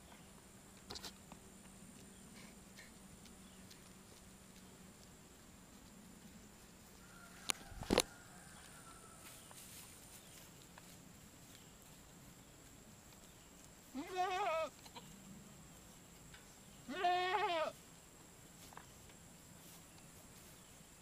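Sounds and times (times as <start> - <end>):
goat bleating: 13.9 - 15.2, 16.8 - 17.8.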